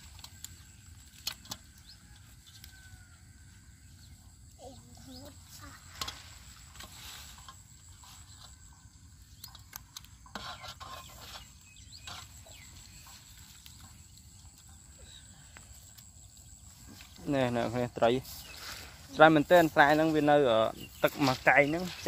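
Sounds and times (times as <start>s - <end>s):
straw rustling: 4.4s - 22.0s.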